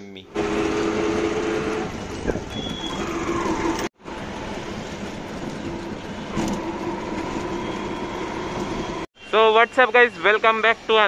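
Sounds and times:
auto-rickshaw engine rumble: 0.3 - 9.1.

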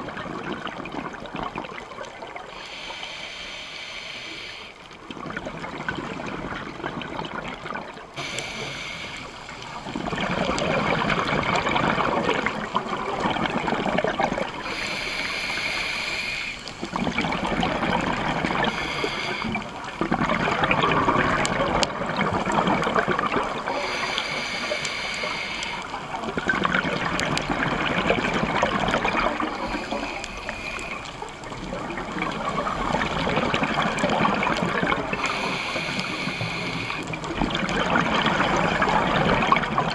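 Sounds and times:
gurgling exhaled bubbles underwater: 0.0 - 2.6, 4.5 - 39.9
regulator inhalation hiss: 2.5 - 4.8, 8.2 - 9.8, 14.6 - 16.9, 18.6 - 19.8, 23.7 - 26.1, 29.5 - 31.6, 35.2 - 37.2.

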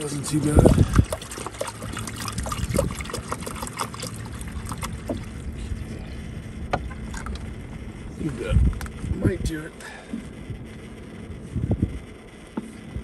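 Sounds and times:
water trickling: 0.0 - 5.7
low steady rumble: 0.0 - 13.0.

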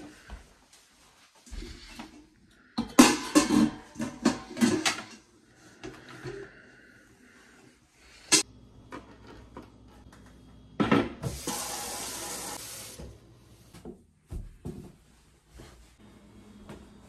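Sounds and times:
faucet water running into bucket: 11.2 - 13.0.

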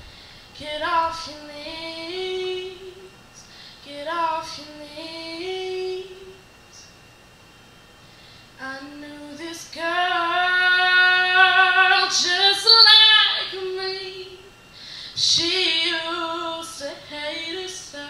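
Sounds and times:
woman singing solo: 8.6 - 14.5.

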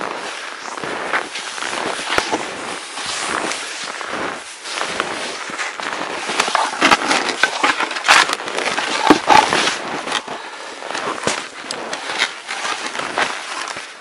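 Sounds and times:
skis crunching through snow: 0.0 - 14.0
crackles and knocks: 4.9 - 13.9.

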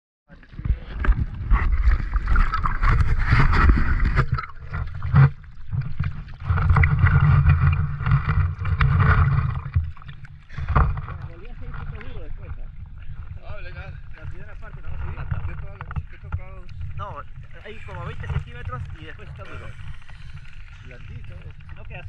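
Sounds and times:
sea water sloshing and splashing: 0.3 - 22.0
wind on microphone: 0.4 - 17.1.

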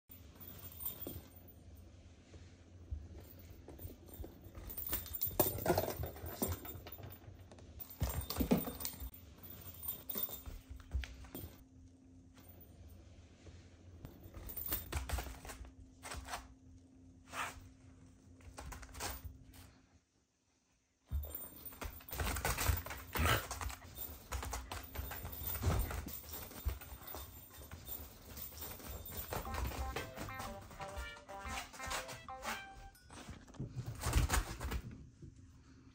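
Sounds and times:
kitten paws scampering: 21.1 - 35.0.

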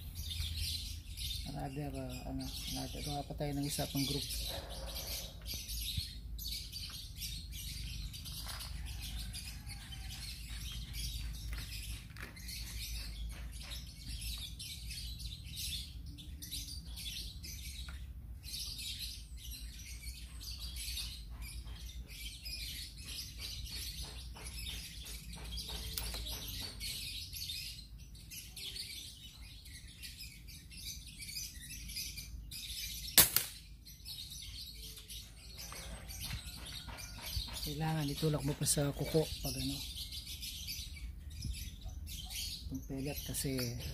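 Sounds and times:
birds chirping: 0.0 - 43.9
air rifle shot: 33.2 - 33.6.

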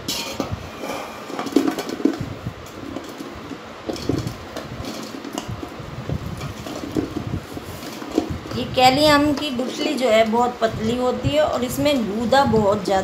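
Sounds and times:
fruit pieces clattering into metal pot: 0.0 - 8.5.

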